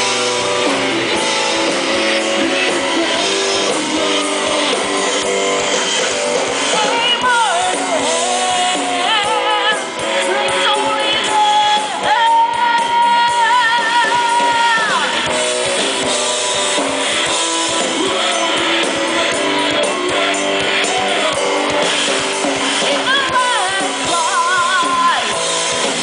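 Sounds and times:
live rock band playing: 0.0s - 26.0s
woman singing: 6.7s - 15.3s, 22.8s - 25.4s.

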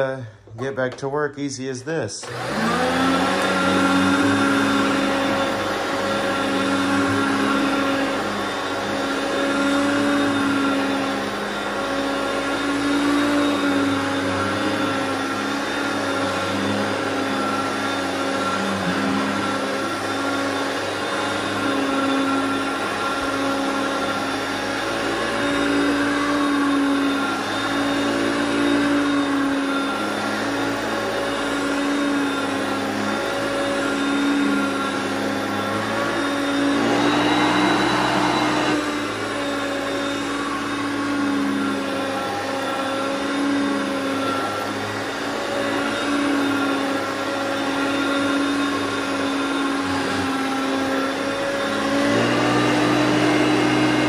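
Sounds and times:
vacuum cleaner running on rug: 2.2s - 54.0s.

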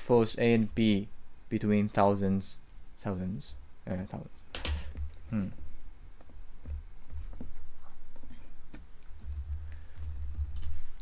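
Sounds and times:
keyboard keys tapping: 8.2s - 10.8s.

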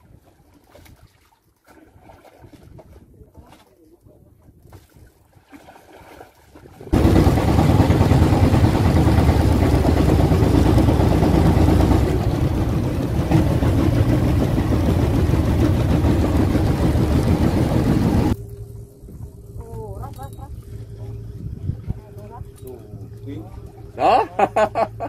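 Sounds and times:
water rushing along hull: 0.0s - 18.4s, 19.7s - 25.0s
boat engine running: 6.9s - 25.0s.

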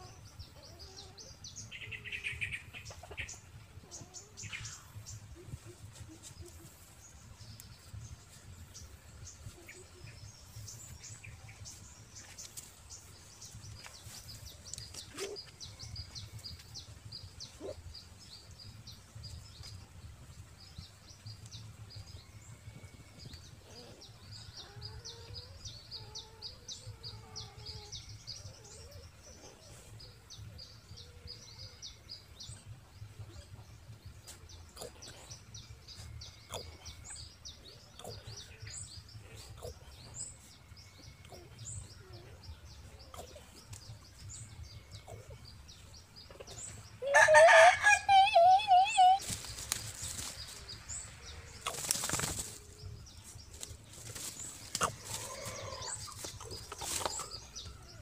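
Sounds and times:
small birds chirping: 0.0s - 58.0s
puppies whimpering: 47.0s - 49.2s.

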